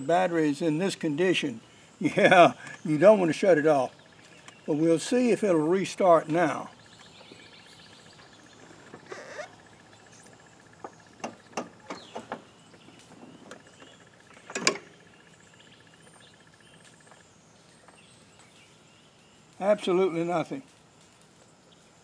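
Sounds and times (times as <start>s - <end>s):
faint clicks and knocks: 8.1s - 15.1s
thin steady high tone: 19.5s - 20.7s.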